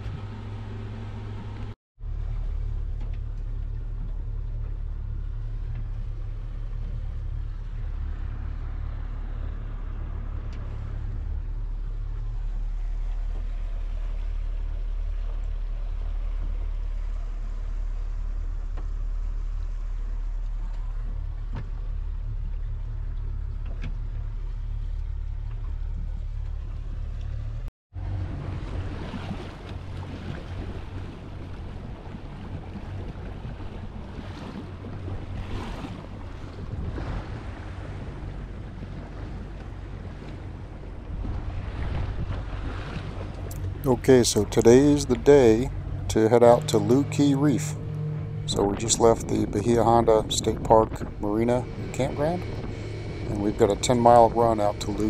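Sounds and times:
vehicle engine rumble: 0:00.0 - 0:55.0
water noise: 0:00.0 - 0:55.0
wind noise: 0:28.3 - 0:55.0.

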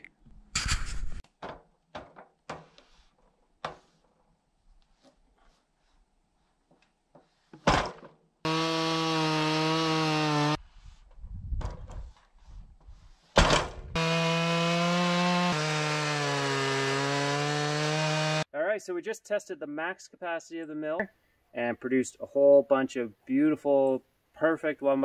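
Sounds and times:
chainsaw cutting through log: 0:08.4 - 0:10.6, 0:13.9 - 0:18.5.

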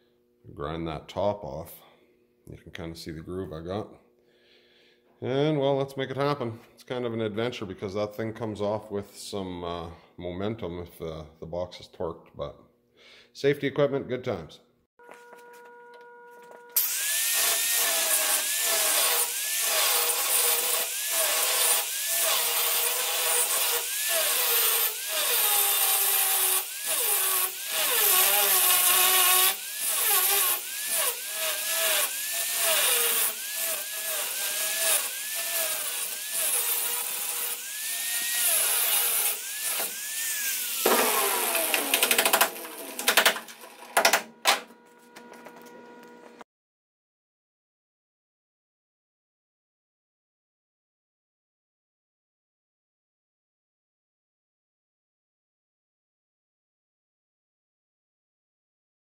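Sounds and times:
grinder motor whine: 0:15.0 - 0:46.4
angle grinder grinding bolts: 0:15.5 - 0:46.4.

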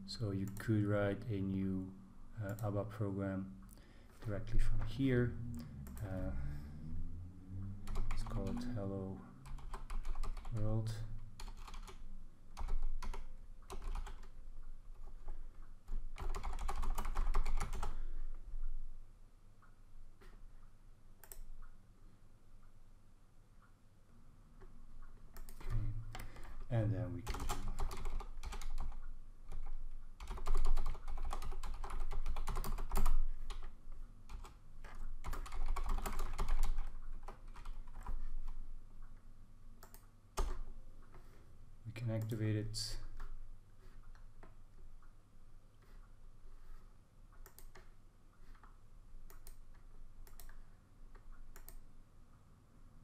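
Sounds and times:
typing on computer keyboard: 0:07.8 - 0:08.7, 0:09.4 - 0:10.7, 0:11.4 - 0:12.0, 0:12.6 - 0:18.0, 0:25.3 - 0:38.6, 0:39.8 - 0:40.6, 0:47.4 - 0:47.9, 0:48.5 - 0:50.6.

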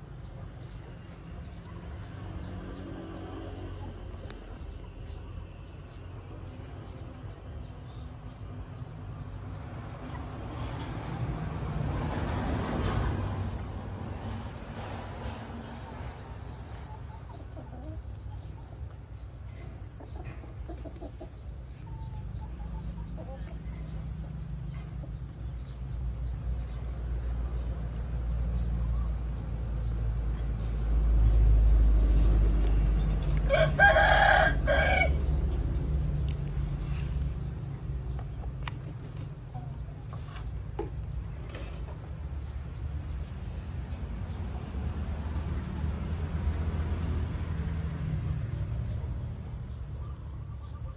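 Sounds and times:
rooster crowing: 0:33.5 - 0:35.3.

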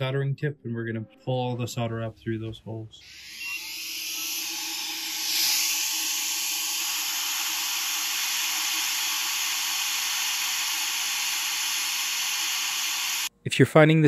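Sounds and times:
hot-air gun blowing: 0:03.0 - 0:13.3.

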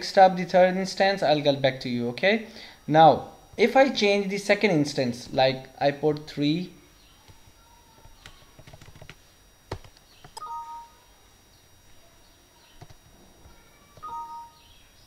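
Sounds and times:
two-note computer chime: 0:10.4 - 0:11.0, 0:14.0 - 0:14.6.

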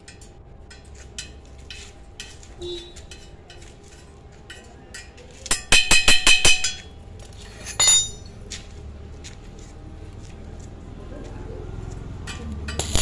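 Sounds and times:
metal taps on steel tube: 0:04.5 - 0:06.9.

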